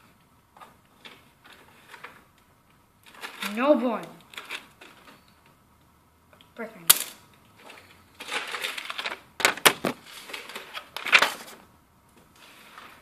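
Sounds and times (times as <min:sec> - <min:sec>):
paper snaps and crackles: 0:00.9 - 0:05.4, 0:06.9 - 0:11.6
paper rustling and crumpling: 0:03.0 - 0:05.3, 0:07.6 - 0:11.7.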